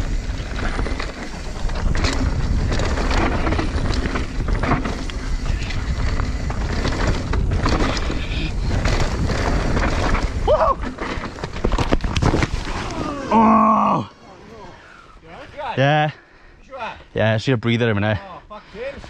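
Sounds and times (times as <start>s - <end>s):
wind rumbling on microphone: 0.0s - 13.2s
bike rattling: 0.0s - 13.5s
tyres rolling on dirt: 0.0s - 14.4s.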